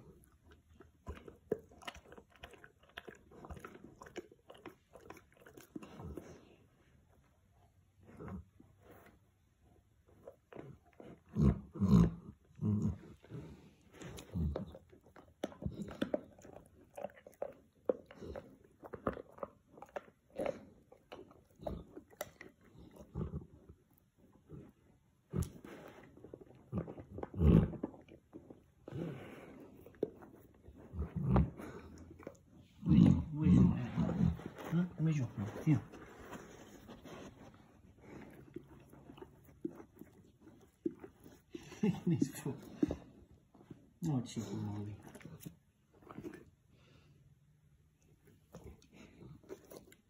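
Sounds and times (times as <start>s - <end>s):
dog gnawing on a chew: 0.0s - 47.1s, 48.0s - 50.0s
teeth crunching and clicking: 14.2s - 23.5s.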